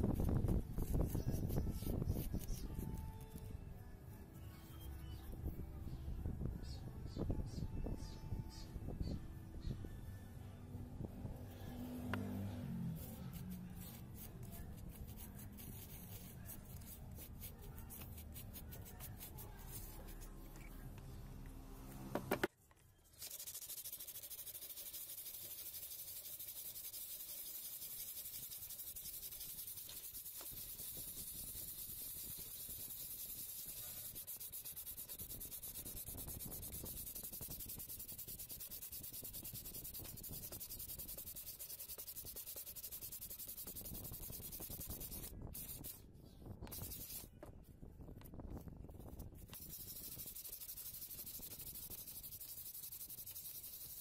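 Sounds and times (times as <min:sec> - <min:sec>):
uneven rubbing and scraping: 0:00.0 - 0:05.2, 0:11.1 - 0:46.0, 0:46.6 - 0:54.0
sandpaper scrubbing plastic: 0:13.0 - 0:20.4, 0:23.2 - 0:46.0, 0:46.7 - 0:47.3, 0:49.4 - 0:54.0.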